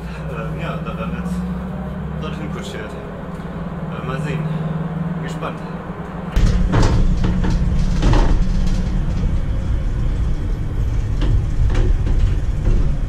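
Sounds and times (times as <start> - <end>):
truck engine and road rumble: 0.0 - 13.0
metal body knocking and rattling: 6.1 - 13.0.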